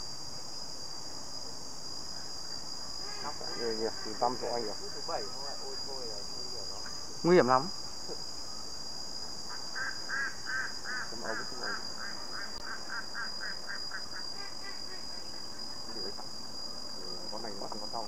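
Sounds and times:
insects droning: 0.0 - 18.0
short repeated animal calls: 9.5 - 15.5.

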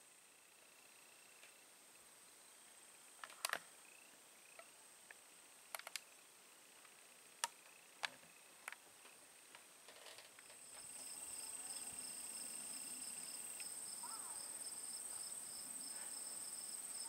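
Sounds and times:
faint high-pitched hiss: 0.0 - 17.0
sharp clicks and ticks: 5.1 - 6.1.

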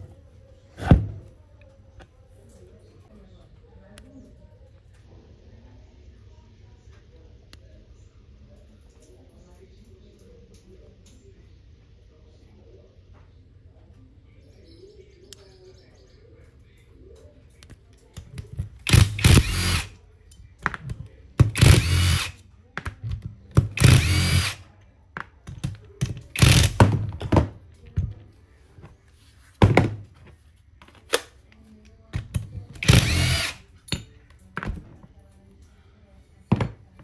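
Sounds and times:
cordless drill motor whine: 18.9 - 19.9, 21.6 - 22.3, 23.8 - 24.6, 32.8 - 33.6.

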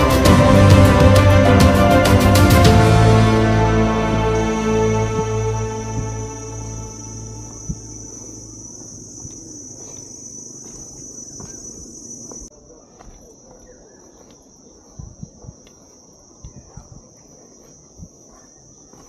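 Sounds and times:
background music: 0.0 - 8.2
high-pitched insect buzz: 4.2 - 12.5
soft footsteps on stairs: 5.0 - 19.0.

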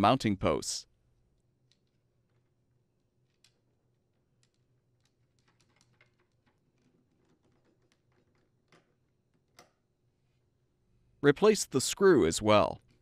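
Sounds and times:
faint small clicks and ticks: 3.2 - 9.8.

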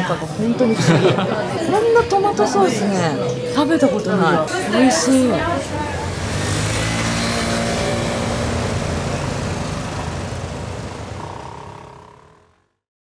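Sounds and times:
cars and scooters passing: 4.4 - 12.7.

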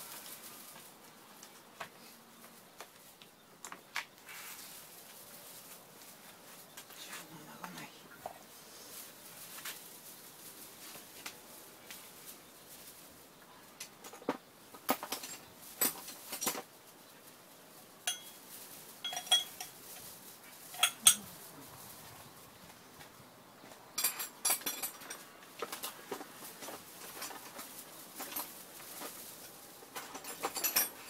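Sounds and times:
metal engine parts clinking: 18.1 - 18.4, 19.0 - 19.8, 20.7 - 21.2, 29.9 - 31.0.

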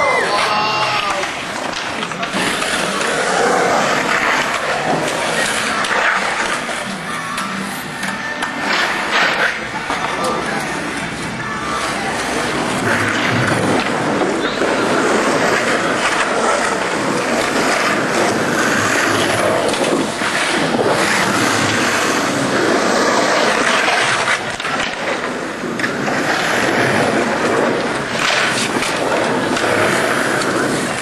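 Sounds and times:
skateboard hits: 0.0 - 31.0
skateboard wheels rolling on concrete: 0.0 - 31.0.

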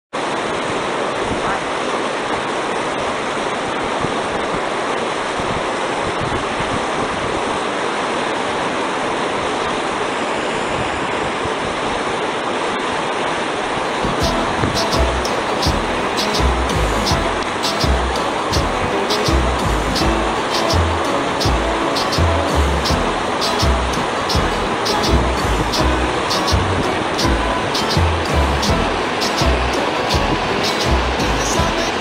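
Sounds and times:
stream running over stones: 12.0 - 32.0
music with a beat: 14.0 - 32.0.

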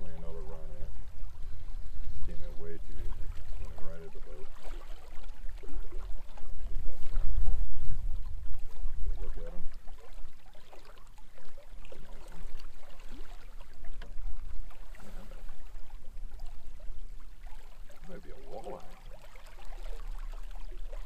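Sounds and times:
wind buffeting microphone: 0.0 - 10.5
river water against boat: 0.0 - 21.0.

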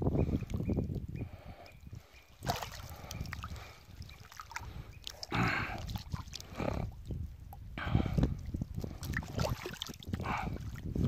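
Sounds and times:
water sloshing and dripping: 2.4 - 11.0
water splashes: 2.4 - 11.0.

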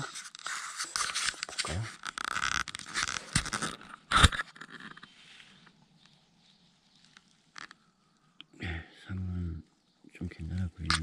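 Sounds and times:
soil scraping and scratching: 0.0 - 5.7, 10.8 - 11.0.

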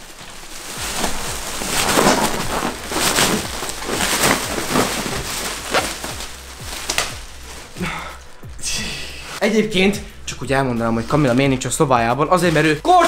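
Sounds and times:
plastic wrapper rustling: 0.0 - 8.5
dull handling thumps: 0.2 - 7.7.

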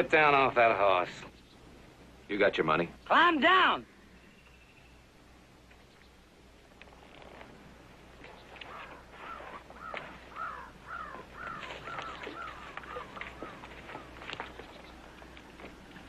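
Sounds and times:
faint clicks on rocky ground: 6.8 - 7.6, 11.4 - 16.0
bird cawing harshly: 8.7 - 14.1.

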